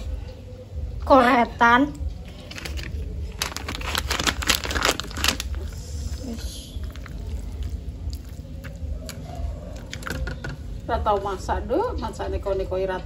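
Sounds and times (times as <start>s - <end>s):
wet squishing and crackling: 1.9s - 11.6s.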